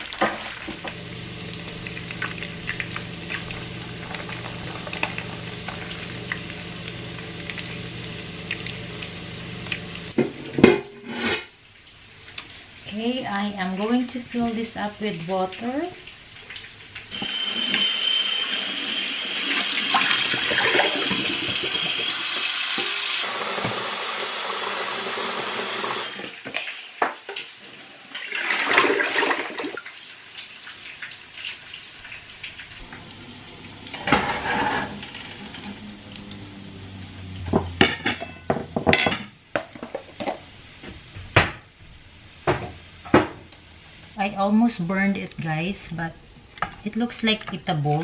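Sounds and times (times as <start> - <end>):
tap water filling metal pot: 0.0 - 7.8, 19.4 - 27.5.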